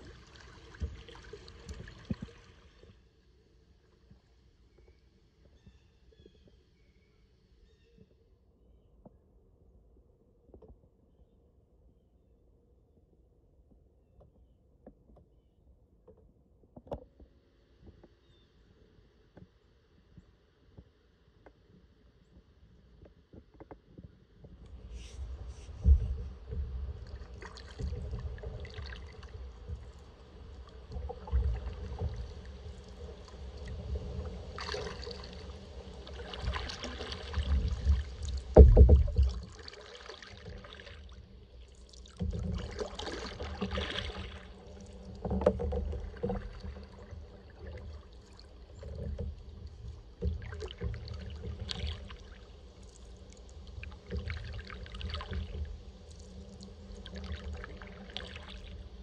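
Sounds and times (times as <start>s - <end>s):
kayak paddle splashing in water: 0.0s - 2.9s, 24.7s - 49.5s, 50.2s - 59.0s.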